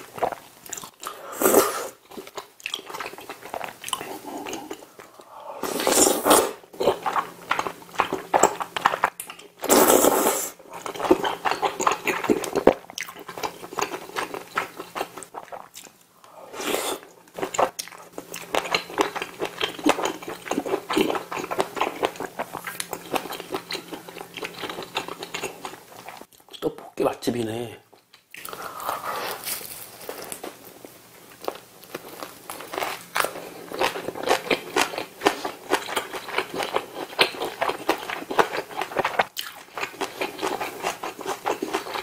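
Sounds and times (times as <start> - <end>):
wet chewing and smacking: 2.0 - 5.3, 6.8 - 9.6, 10.7 - 16.1, 17.3 - 26.7, 31.3 - 42.0
loud slurps: 4.2 - 6.6.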